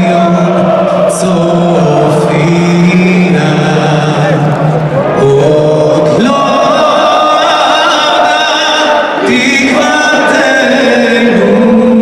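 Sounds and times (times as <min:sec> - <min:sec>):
football crowd singing: 0:00.0 - 0:12.0.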